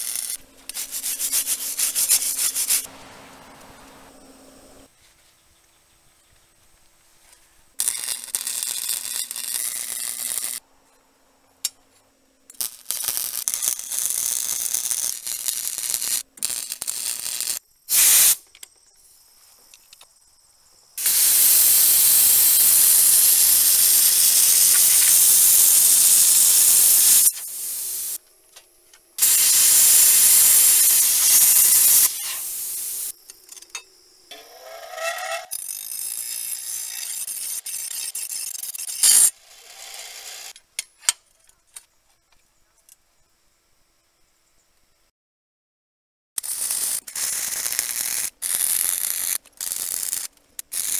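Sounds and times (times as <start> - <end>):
plasma cutter hissing: 0.0 - 2.9, 12.6 - 18.4, 21.0 - 28.2, 29.2 - 33.2, 46.4 - 50.9.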